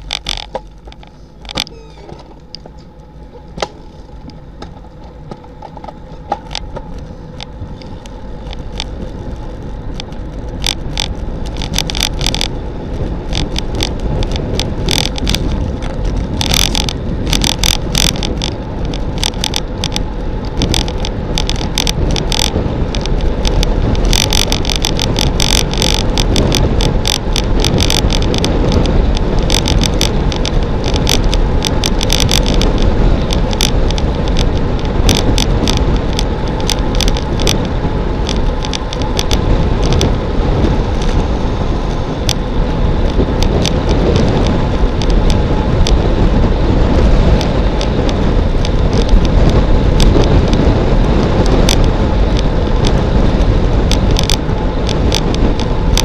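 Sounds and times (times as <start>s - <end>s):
bicycle tyre noise: 0.0s - 56.0s
wind rushing over microphone: 0.0s - 56.0s
sharp clicks: 5.3s - 40.1s.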